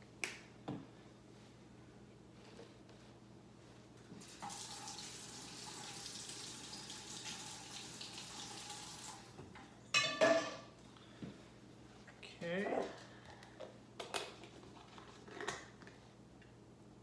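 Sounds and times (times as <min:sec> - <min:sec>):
kitchen faucet running: 0:04.2 - 0:09.4.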